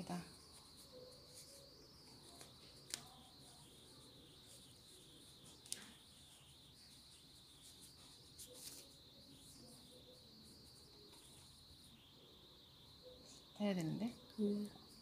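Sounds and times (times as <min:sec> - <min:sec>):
faint high hiss: 0:00.0 - 0:15.0
cloth mask rustling: 0:00.2 - 0:10.0.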